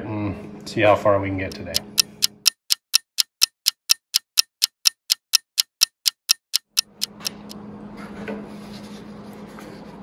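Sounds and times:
clock ticking: 1.4s - 7.6s.

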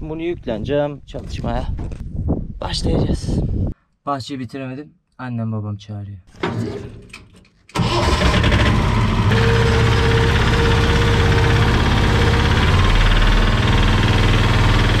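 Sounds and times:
utility vehicle engine running: 7.8s - 15.0s.

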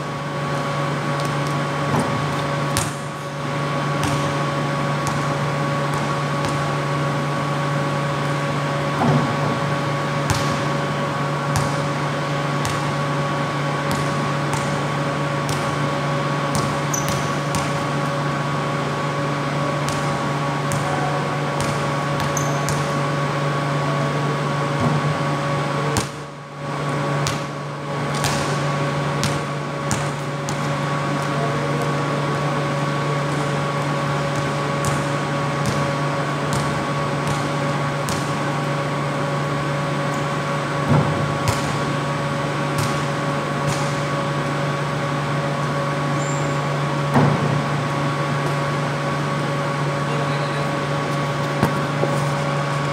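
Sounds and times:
steady mechanical hum: 0.0s - 52.9s
basketball bouncing on concrete: 1.2s - 3.1s, 3.9s - 6.7s, 10.2s - 10.7s, 11.5s - 11.9s, 12.6s - 13.0s, 13.8s - 15.8s, 16.5s - 17.9s, 19.8s - 23.0s, 27.2s - 28.6s, 29.2s - 32.0s, 34.3s - 38.4s, 40.9s - 41.9s, 42.7s - 44.0s, 51.4s - 52.4s.

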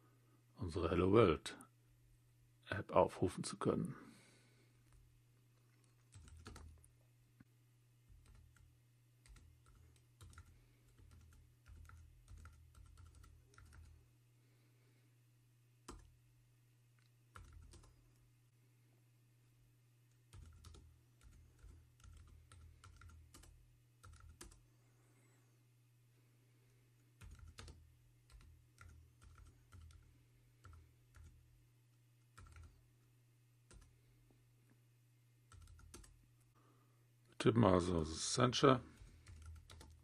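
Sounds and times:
faint keyboard typing: 4.8s - 14.1s, 15.8s - 16.2s, 16.9s - 18.3s, 20.0s - 24.7s, 26.9s - 34.8s, 35.4s - 36.5s, 38.8s - 40.0s.

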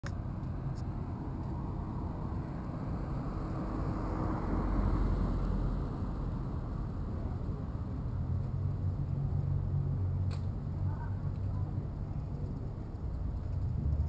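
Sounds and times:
street background rumble: 0.0s - 14.0s.

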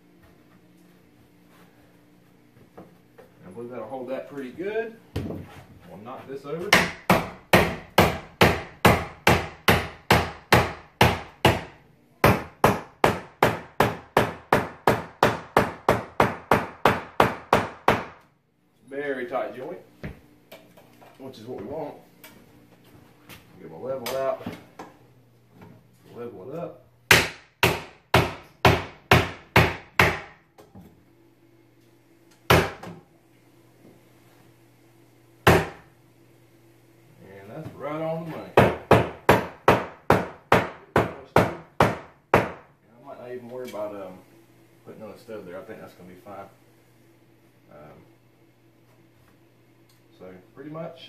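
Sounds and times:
hammer striking wooden stud: 6.7s - 18.2s, 27.1s - 30.4s, 32.5s - 33.0s, 35.5s - 35.8s, 38.6s - 42.6s.

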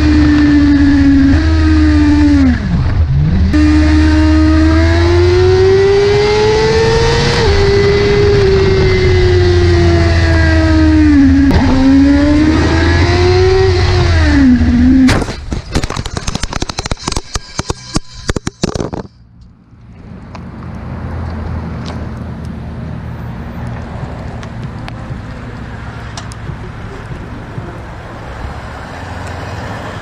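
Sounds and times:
motorcycle engine running hard: 0.0s - 15.1s
motorcycle crash: 13.8s - 19.2s
clattering and scraping on road: 15.0s - 30.0s.

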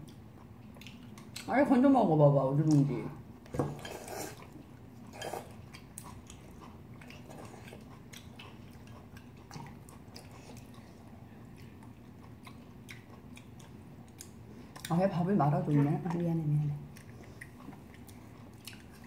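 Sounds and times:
chewing: 0.0s - 1.5s, 3.8s - 15.0s, 15.7s - 19.0s.

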